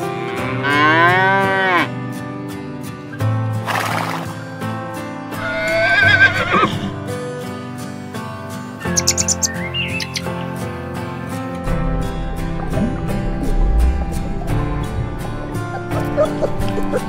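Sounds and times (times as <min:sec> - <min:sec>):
cow mooing: 0:00.0 - 0:01.9
horse whinnying: 0:05.4 - 0:06.9
music with steady beat: 0:11.6 - 0:17.0.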